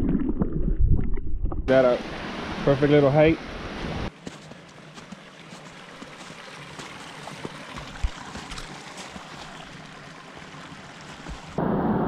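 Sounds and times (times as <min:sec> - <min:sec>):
mountain stream running: 0:01.7 - 0:11.6
footsteps in snow: 0:04.1 - 0:11.6.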